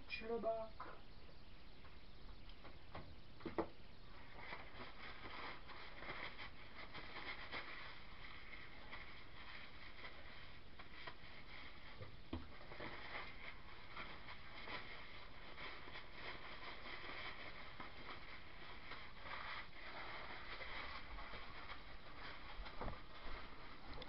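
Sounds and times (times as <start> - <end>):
steady hiss: 0.0 - 24.0.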